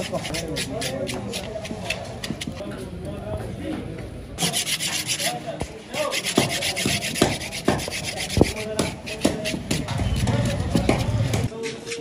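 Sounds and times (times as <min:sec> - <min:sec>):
knife scraping skin on wood: 0:00.0 - 0:02.6, 0:06.0 - 0:12.0.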